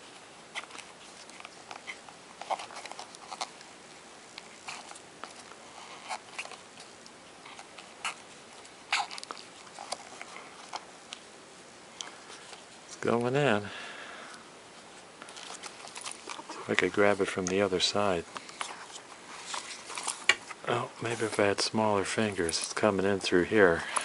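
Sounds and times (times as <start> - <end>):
handling rubber mask and tape: 0.0 - 13.7, 14.4 - 24.0.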